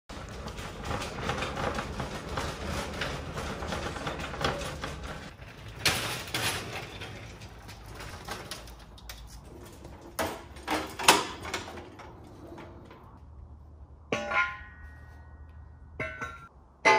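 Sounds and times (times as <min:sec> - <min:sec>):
garage door opener running: 0:00.1 - 0:08.6
cart rolling over concrete: 0:00.1 - 0:13.5
metal clanks: 0:14.1 - 0:16.9.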